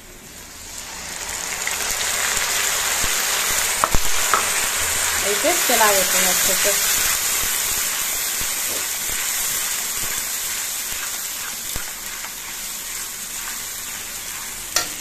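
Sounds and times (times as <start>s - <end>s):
masala sizzling in oil: 0.2s - 15.0s
metal spatula scraping pan: 7.8s - 15.0s.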